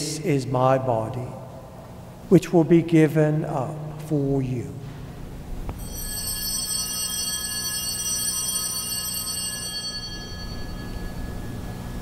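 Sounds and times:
low steady hum: 0:00.0 - 0:12.0
bell ringing: 0:05.8 - 0:12.0.

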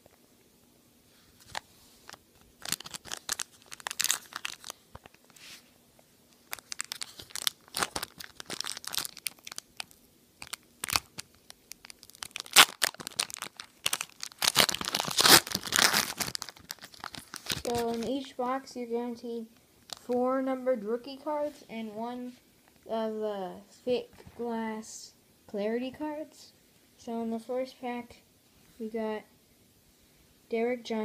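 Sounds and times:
foil pack crinkling and tearing: 0:01.4 - 0:05.4, 0:06.4 - 0:18.1.

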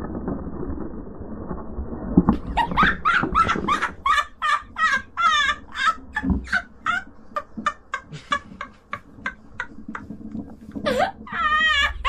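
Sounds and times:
man laughing breathlessly: 0:02.6 - 0:12.0.

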